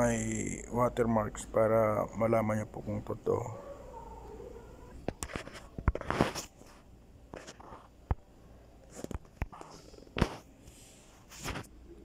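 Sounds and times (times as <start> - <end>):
soft rustling: 4.9 - 8.0.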